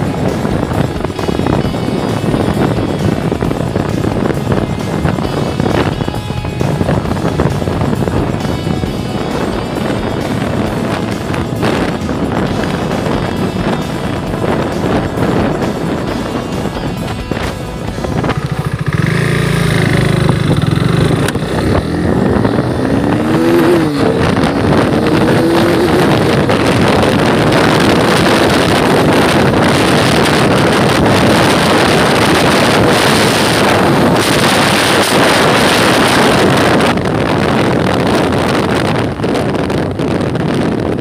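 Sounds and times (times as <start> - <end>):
motorcycle engine accelerating: 0.0 - 41.0
wind rush on microphone: 0.0 - 41.0.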